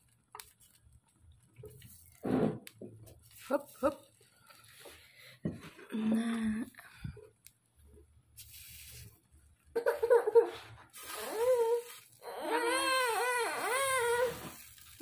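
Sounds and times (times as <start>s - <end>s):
high whining cries: 12.2s - 14.4s.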